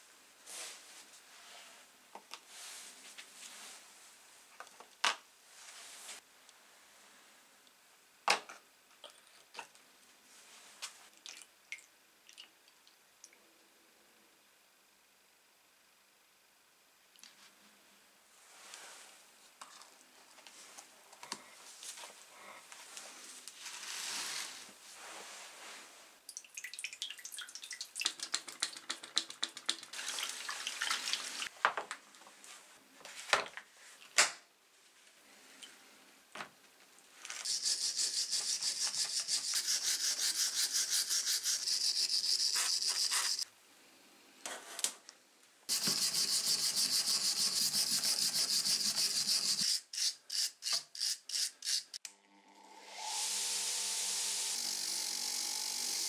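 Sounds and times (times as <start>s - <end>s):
brush scrubbing metal in water: 37.5s - 43.4s, 45.7s - 49.8s.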